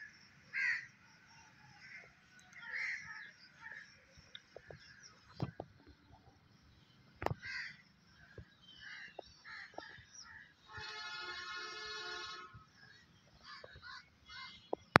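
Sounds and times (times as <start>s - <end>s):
outdoor village ambience: 0.0s - 15.0s
distant vehicle horn: 10.7s - 12.7s.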